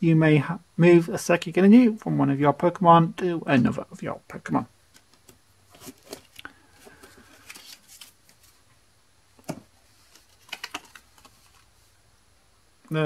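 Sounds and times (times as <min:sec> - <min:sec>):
cards rustling: 0:04.9 - 0:08.7, 0:09.4 - 0:11.9
cards tapping: 0:09.4 - 0:11.7.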